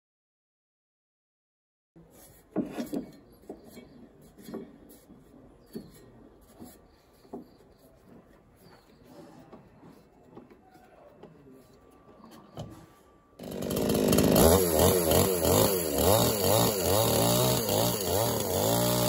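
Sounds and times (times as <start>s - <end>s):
wooden knocks and scrapes: 2.1s - 13.0s.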